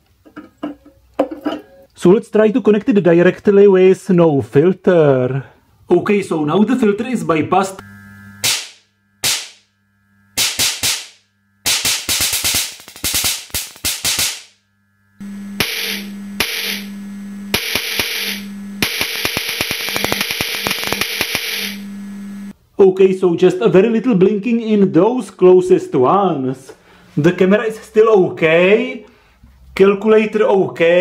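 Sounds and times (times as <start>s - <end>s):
low hum with crackling snaps: 7.3s - 22.6s
loud spark discharge bangs: 8.4s - 9.7s, 10.3s - 14.6s, 15.6s - 16.9s, 17.6s - 21.8s.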